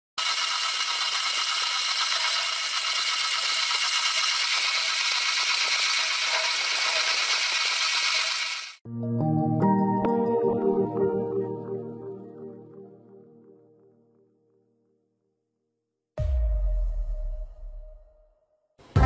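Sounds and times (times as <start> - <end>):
model engine metallic rattle: 0.2 - 8.8.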